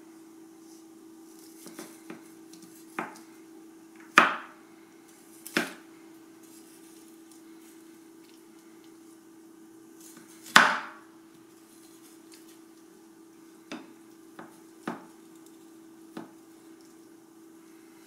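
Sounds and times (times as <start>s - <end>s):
steady low hum: 0.0s - 18.0s
cleaver chopping on wooden board: 4.1s - 4.5s, 10.5s - 11.0s.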